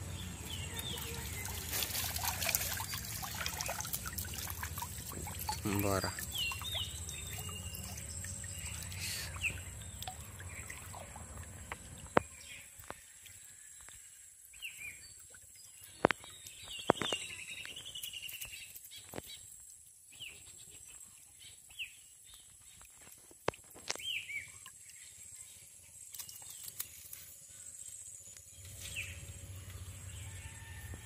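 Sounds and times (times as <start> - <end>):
birds chirping: 0.0 - 13.2, 14.6 - 19.4
water trickling: 0.0 - 27.1.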